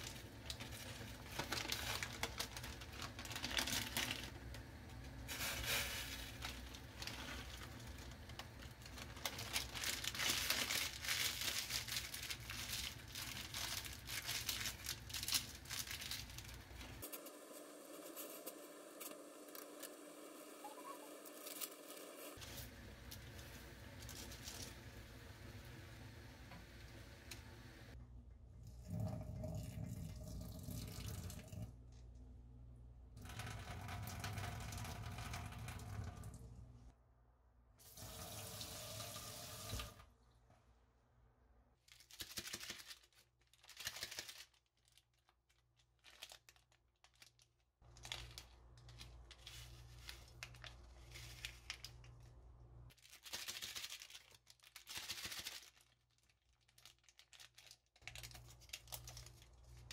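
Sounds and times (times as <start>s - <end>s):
sachets crinkling and tearing: 0.0s - 17.1s, 20.8s - 24.9s, 41.8s - 59.9s
powder shaken from sachet: 5.2s - 17.2s, 41.9s - 52.1s, 52.9s - 59.9s
water pouring into a steel sink: 28.7s - 31.7s, 33.2s - 36.4s, 37.8s - 40.0s.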